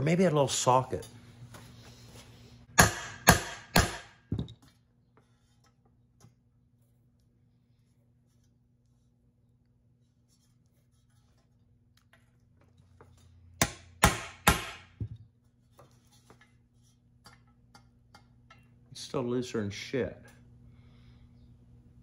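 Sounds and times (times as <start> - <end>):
hammer striking metal: 2.8 - 4.2, 13.6 - 15.0.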